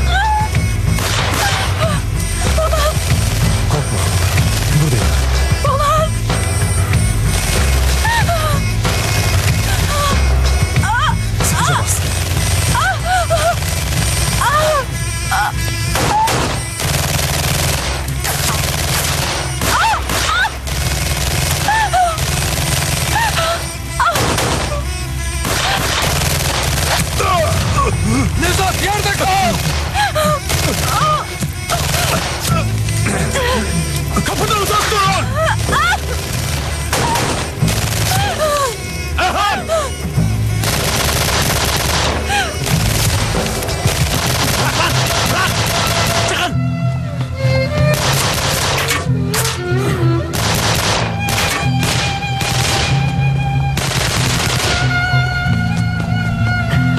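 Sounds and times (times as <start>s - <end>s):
woman screaming: 0.0s - 0.6s, 1.4s - 3.1s, 5.6s - 6.2s, 8.0s - 8.7s, 9.7s - 12.0s, 12.7s - 13.6s, 14.4s - 16.7s, 19.6s - 20.7s, 21.6s - 22.4s, 23.1s - 25.0s, 27.0s - 36.2s, 36.8s - 40.1s, 42.3s - 42.6s
rapid dense gunfire: 0.6s - 38.7s, 40.6s - 46.6s, 47.9s - 49.1s, 50.3s - 53.2s, 53.8s - 55.2s.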